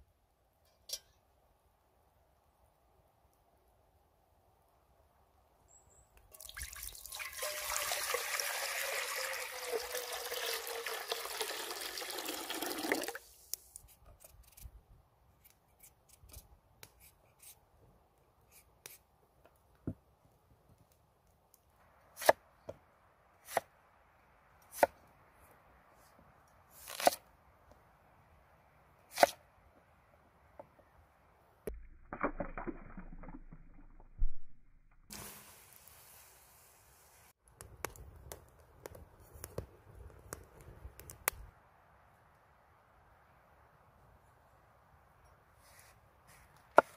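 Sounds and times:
potatoes splashing into water: 0:06.3 - 0:13.2, 0:31.7 - 0:34.1
water pouring into a pot: 0:06.3 - 0:13.2.

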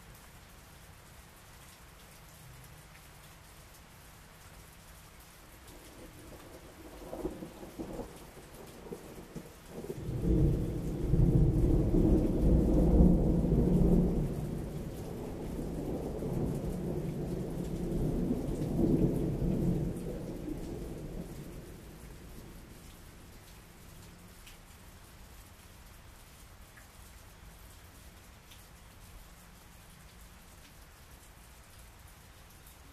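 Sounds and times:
steady rain: 0:00.0 - 0:32.9
thunder rumbling: 0:05.7 - 0:23.5.

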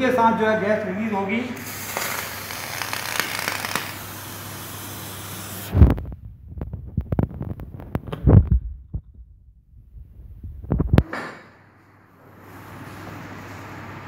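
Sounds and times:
chemical reaction hissing: 0:01.6 - 0:05.8.

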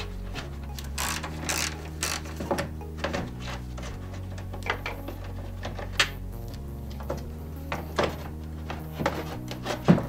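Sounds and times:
hands handling plastic parts: 0:00.0 - 0:10.0
low background music: 0:00.0 - 0:10.0.

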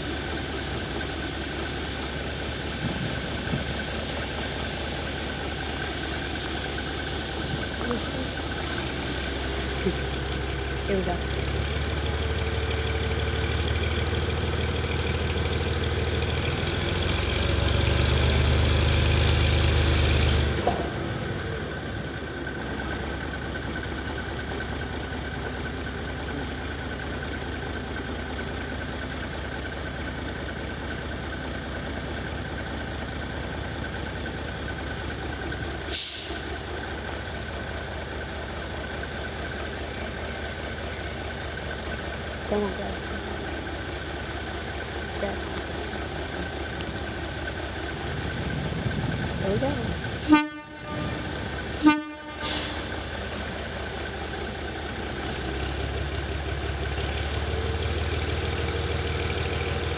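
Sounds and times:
diesel locomotive engine running: 0:00.0 - 0:59.9
sharp hiss: 0:35.9 - 0:36.5, 0:52.4 - 0:53.4.

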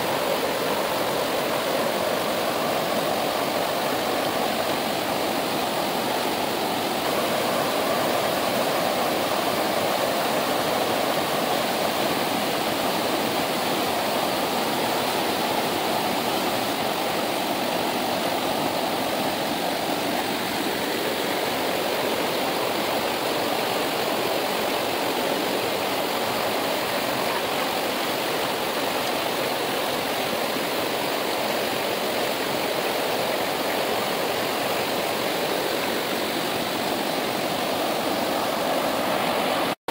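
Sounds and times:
river water rushing: 0:00.0 - 0:39.9.

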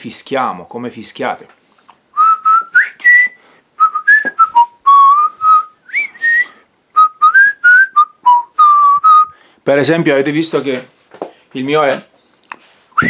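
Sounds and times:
man whistling a melody: 0:02.2 - 0:09.4.

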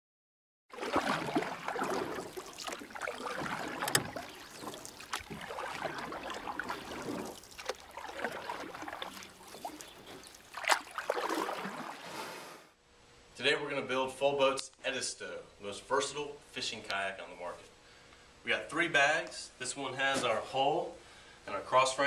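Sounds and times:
water splashing and trickling: 0:00.7 - 0:12.4.

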